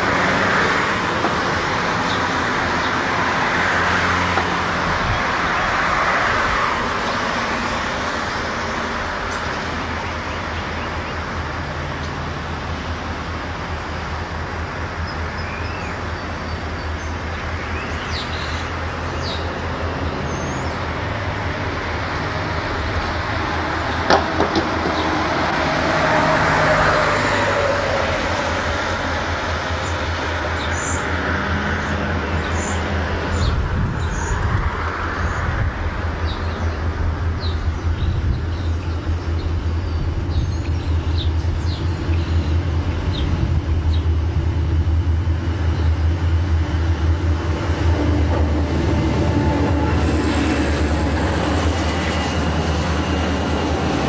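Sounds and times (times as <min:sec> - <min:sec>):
vehicle passing: 0:00.0 - 0:13.9, 0:14.6 - 0:54.0
road traffic: 0:00.0 - 0:54.0
low hum: 0:16.2 - 0:54.0.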